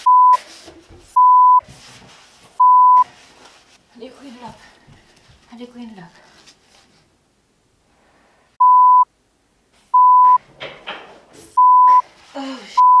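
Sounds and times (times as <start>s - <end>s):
censor bleeps: 1.2s - 1.6s, 2.6s - 3.0s, 8.6s - 9.1s, 10.0s - 10.4s, 11.6s - 12.0s, 12.8s - 13.0s.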